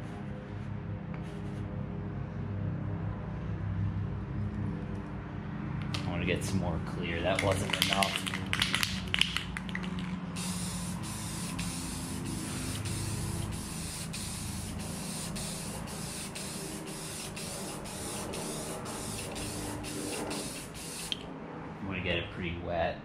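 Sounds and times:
aerosol spray can hissing: 7.6s - 21.2s.

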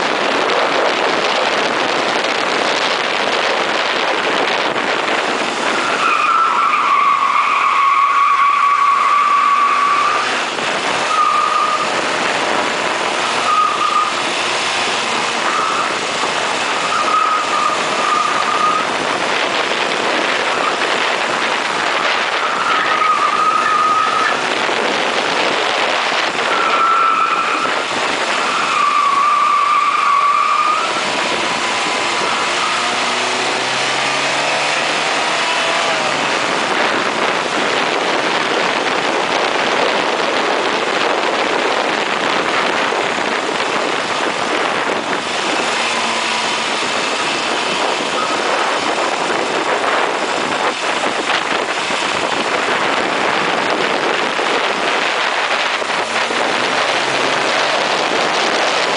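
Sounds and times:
road noise: 0.0s - 58.9s
wind on microphone: 0.0s - 58.9s
tyres squealing: 5.7s - 12.2s, 13.1s - 19.0s, 21.9s - 24.6s, 26.4s - 36.6s.

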